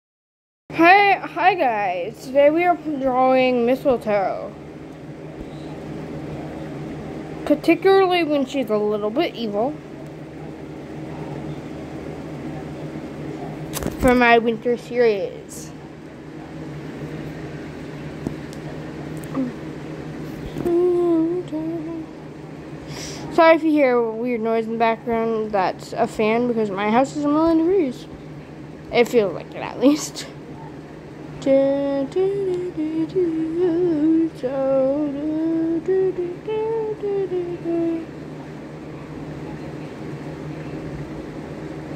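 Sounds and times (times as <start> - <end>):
electric fan whirring: 0.7 - 41.9
woman humming: 19.2 - 19.6, 20.6 - 22.1.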